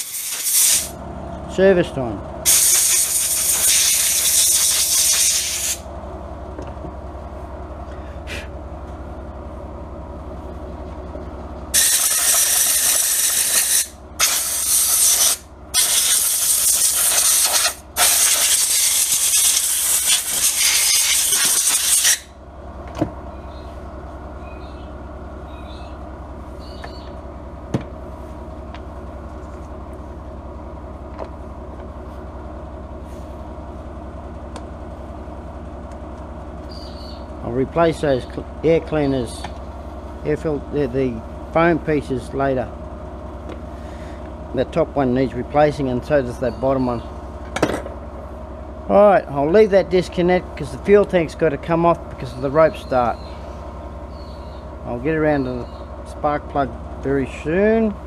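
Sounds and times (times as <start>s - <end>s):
compressed air blasts: 0.0s - 1.0s, 2.4s - 5.8s, 11.7s - 22.3s.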